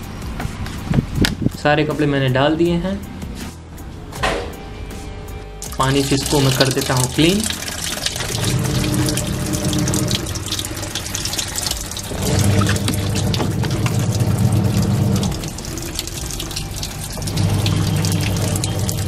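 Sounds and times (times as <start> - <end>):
washing machine motor humming: 5.6 - 19.0
water pouring into plastic tub: 5.6 - 19.0.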